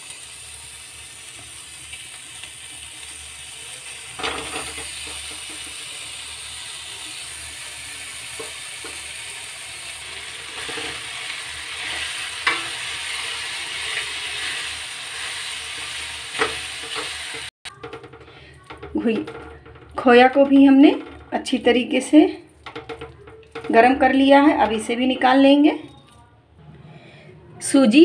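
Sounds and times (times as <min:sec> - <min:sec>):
faint steady sizzle: 0:00.0 - 0:17.5
spatula scraping and clinking pan: 0:09.9 - 0:25.5.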